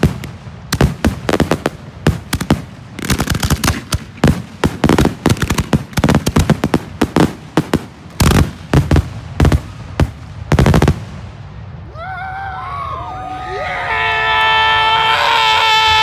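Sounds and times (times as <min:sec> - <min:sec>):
fireworks cracking: 0:00.0 - 0:11.3.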